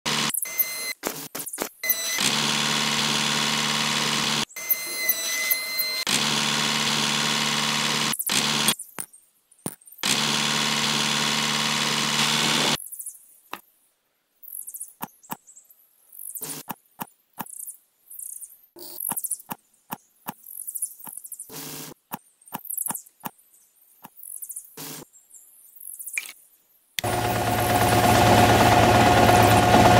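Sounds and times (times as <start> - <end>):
toy electric motor humming: 1.8 - 8.8, 10.0 - 12.8
high steady whine: 27.0 - 29.9.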